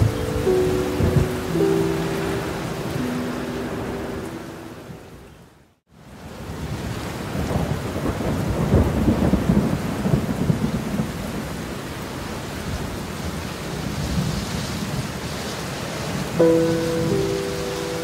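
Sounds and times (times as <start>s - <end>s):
heavy rain falling: 0.0s - 5.2s, 6.0s - 18.0s
rolling thunder rumble: 7.3s - 11.6s.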